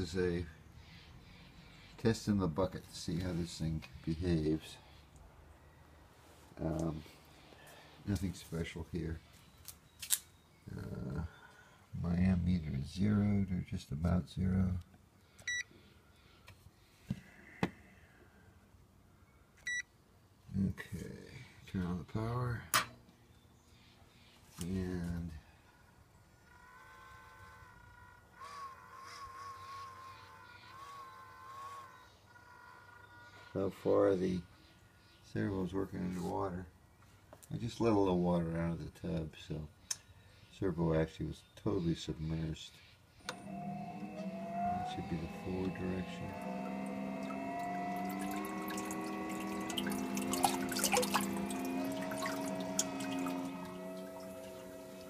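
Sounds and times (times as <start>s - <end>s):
faint high electric whine: 24.6s - 34.5s, 43.2s - 55.0s
servo buzzing tone: 26.3s - 33.5s, 43.2s - 55.0s
water splashing and dripping: 47.6s - 55.0s.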